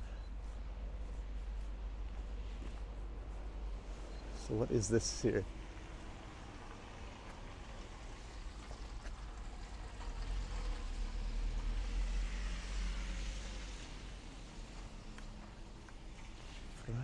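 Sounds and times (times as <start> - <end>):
vehicle passing by: 5.6 - 15.6.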